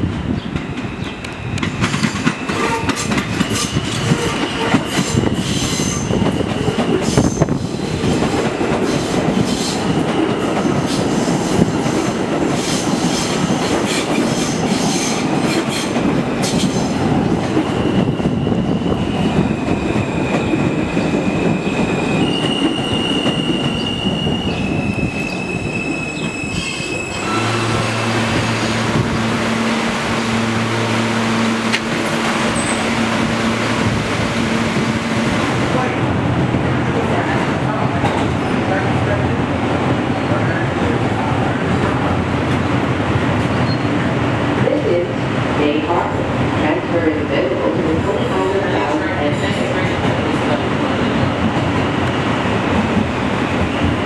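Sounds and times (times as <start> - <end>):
subway train wheels rumbling: 0.0 - 54.0
train low hum: 0.0 - 54.0
train motor whine: 27.0 - 35.2.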